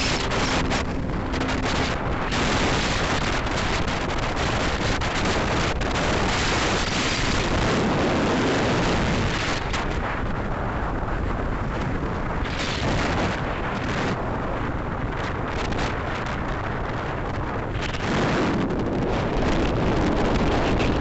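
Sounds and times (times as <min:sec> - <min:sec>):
road noise: 0:00.0 - 0:07.5
wind buffeting microphone: 0:00.0 - 0:21.0.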